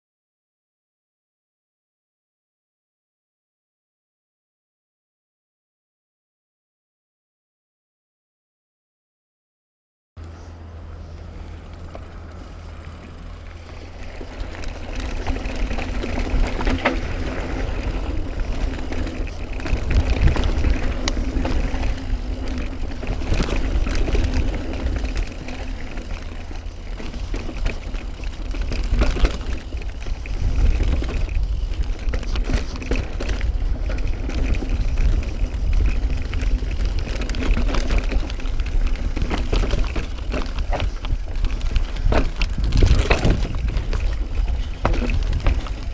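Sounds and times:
bike knocking and rattling: 10.2 - 45.9
bike tyres rumbling over rock: 11.7 - 45.9
wind rumble on microphone: 12.8 - 45.9.

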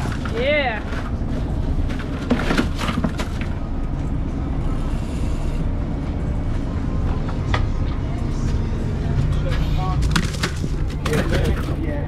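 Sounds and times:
boat engine rumble: 0.0 - 12.0
fish clattering onto ice: 10.0 - 11.9.

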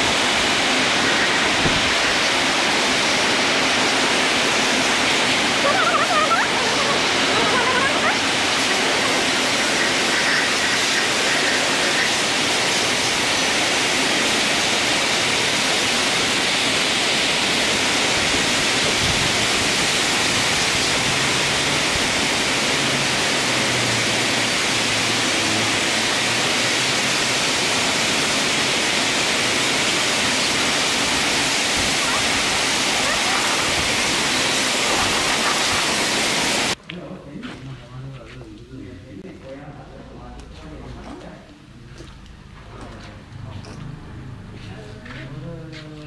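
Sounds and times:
pressure washer water jet hissing: 0.0 - 36.8.

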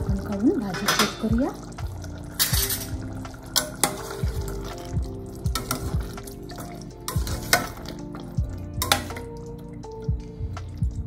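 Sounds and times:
curry simmering: 0.0 - 11.0
soft background music: 0.0 - 11.0
spatula scraping steel pot: 2.4 - 4.8, 5.6 - 8.0.

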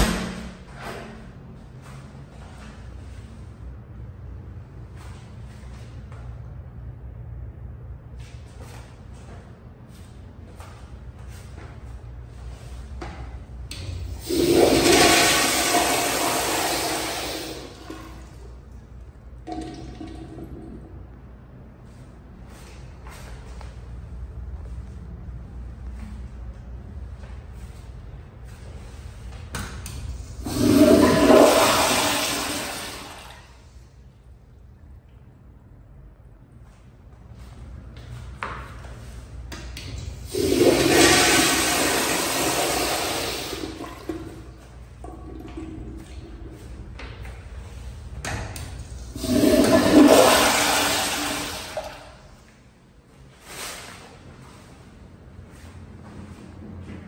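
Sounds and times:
toilet flushing rush of water: 13.7 - 18.6, 19.4 - 21.1, 30.1 - 33.7, 40.0 - 46.9, 47.6 - 52.4.

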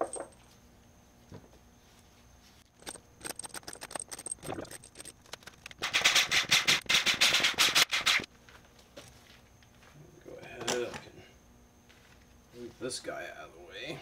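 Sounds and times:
metal bolts clinking and rattling: 2.7 - 5.6.

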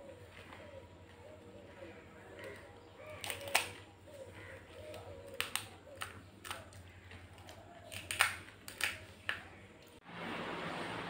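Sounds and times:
crisp shells cracking: 2.4 - 9.6.

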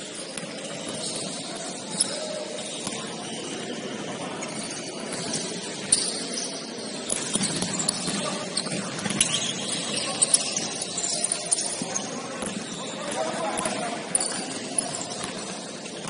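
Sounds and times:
gym room noise: 0.0 - 16.0
sneakers squeaking on court: 0.0 - 16.0
basketball bouncing: 7.0 - 16.0.

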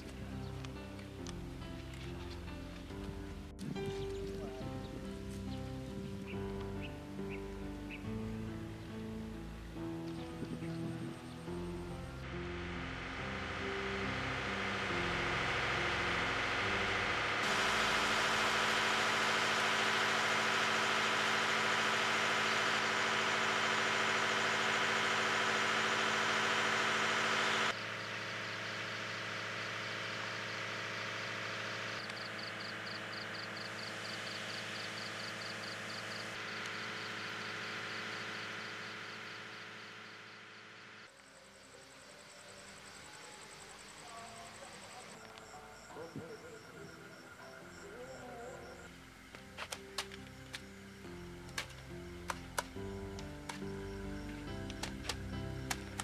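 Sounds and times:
music track: 0.0 - 27.8, 42.8 - 56.0
insects chirping: 0.0 - 56.0
machine hum: 0.0 - 56.0
loud wash of noise: 12.3 - 27.8.

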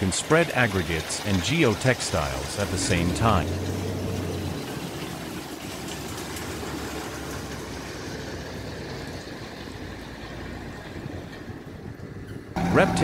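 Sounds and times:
diesel engine of heavy machinery: 0.7 - 13.0
even rushing noise: 2.5 - 5.3.

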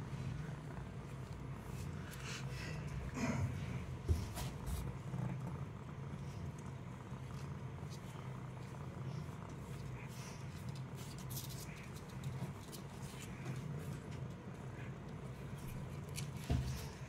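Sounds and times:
cat purring: 0.0 - 17.0
faint scratchy rustles: 3.6 - 17.0.

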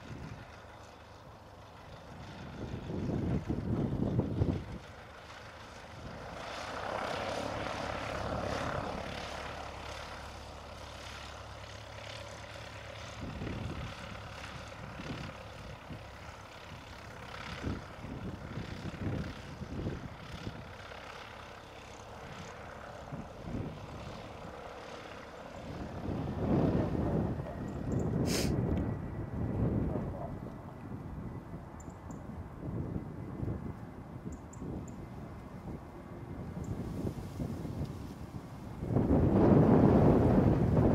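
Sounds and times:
light aircraft engine droning: 0.0 - 40.9
wind rumbling on microphone: 2.1 - 5.1, 13.0 - 20.8, 22.2 - 24.7, 25.6 - 40.9.

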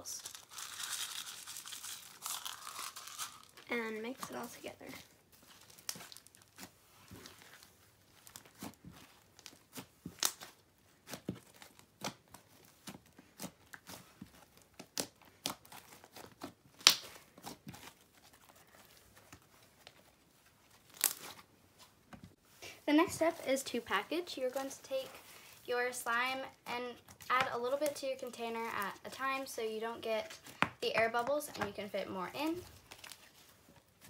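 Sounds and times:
slime clicking and crackling: 0.1 - 20.1, 20.7 - 21.4.

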